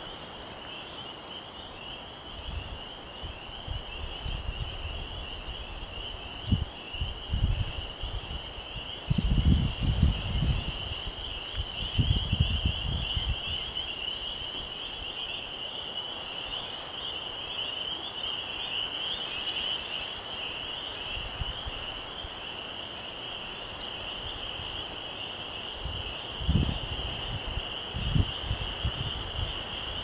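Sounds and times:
high-pitched animal chorus: 0:00.0 - 0:30.0
wind on microphone: 0:02.4 - 0:15.1, 0:25.7 - 0:30.0.

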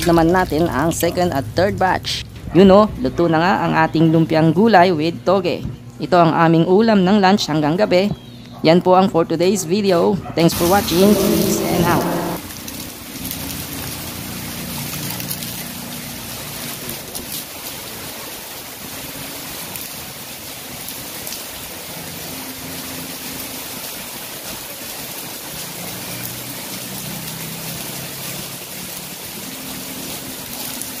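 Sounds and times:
heavy rain on concrete: 0:10.5 - 0:31.0
rain splashing into bucket: 0:10.5 - 0:31.0.

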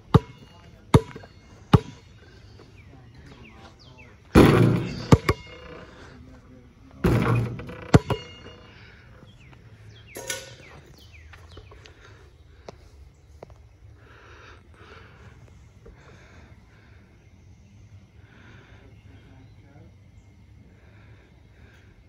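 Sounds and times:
basketball bouncing on asphalt: 0:00.0 - 0:02.7, 0:04.3 - 0:05.8, 0:07.0 - 0:08.6
birds chirping faintly: 0:00.0 - 0:22.0
ball clanging on metal hoop: 0:00.1 - 0:02.1, 0:04.3 - 0:06.2, 0:07.0 - 0:08.9, 0:10.1 - 0:10.9.

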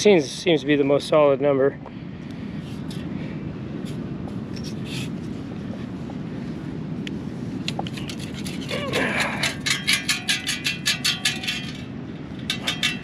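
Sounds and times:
ocean surf rumble: 0:00.0 - 0:10.0.

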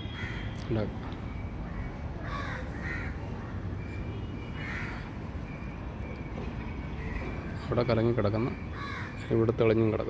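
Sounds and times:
crow cawing: 0:00.0 - 0:00.6, 0:01.7 - 0:03.6, 0:04.6 - 0:05.1, 0:08.7 - 0:09.2
low background noise: 0:00.0 - 0:10.0.

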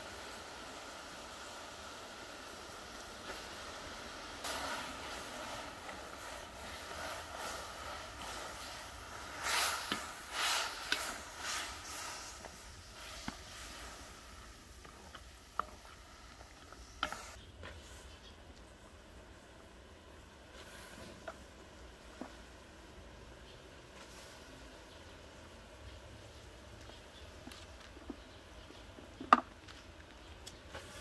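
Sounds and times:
petals steaming in pot hiss: 0:00.0 - 0:31.0
spatula swishing in pot: 0:04.4 - 0:18.2.

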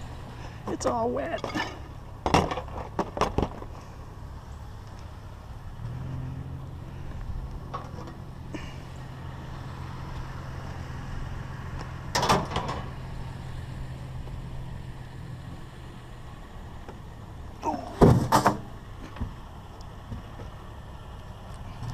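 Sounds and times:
metal tray clattering in truck bed: 0:01.3 - 0:03.6, 0:07.7 - 0:08.2, 0:12.1 - 0:12.9, 0:17.8 - 0:19.3
truck engine idling: 0:01.8 - 0:21.9.

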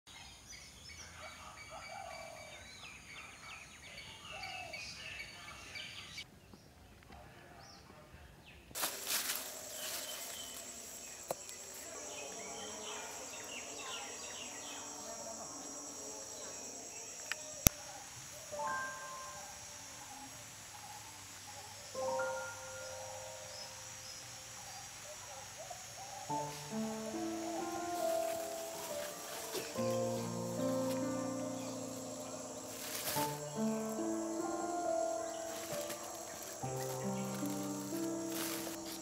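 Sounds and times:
small birds chirping: 0:00.1 - 0:39.0
high-pitched insect drone: 0:08.8 - 0:39.0.

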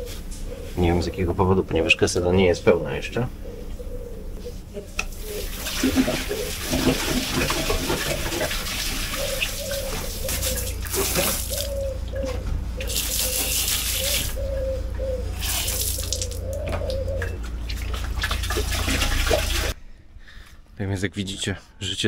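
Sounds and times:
steady low hum: 0:00.0 - 0:22.0
water running from a tap: 0:05.3 - 0:11.7, 0:15.4 - 0:16.5, 0:18.0 - 0:19.8.

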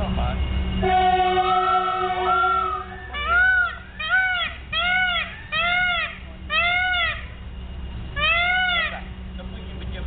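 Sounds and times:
peacock honking calls: 0:00.8 - 0:07.4, 0:08.1 - 0:09.1.

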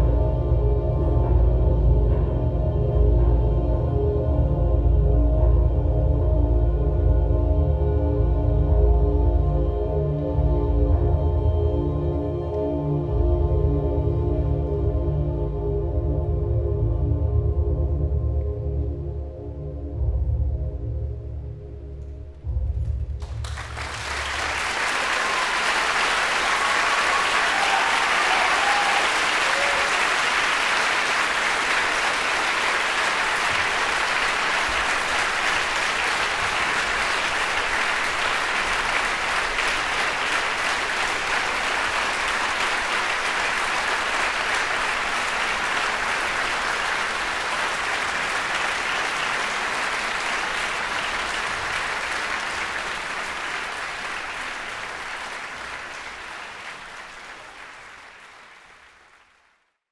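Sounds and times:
low music notes: 0:00.0 - 0:24.8
audience applauding: 0:23.2 - 0:59.8.

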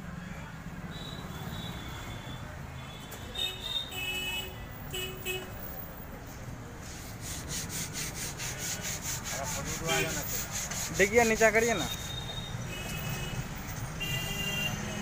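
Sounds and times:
street traffic: 0:00.0 - 0:15.0
hand sanding metal: 0:06.8 - 0:12.3.

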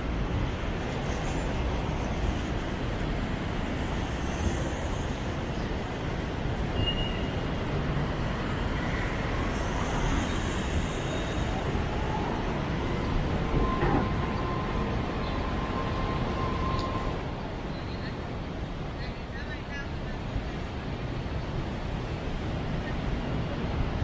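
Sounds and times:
street traffic rumble: 0:00.0 - 0:24.0.

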